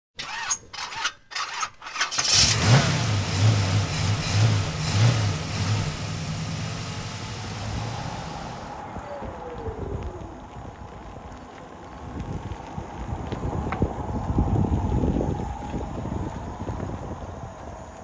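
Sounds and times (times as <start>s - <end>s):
car engine cranking: 0.2s - 8.7s
car engine revving: 2.0s - 8.8s
car engine idling: 2.1s - 8.8s.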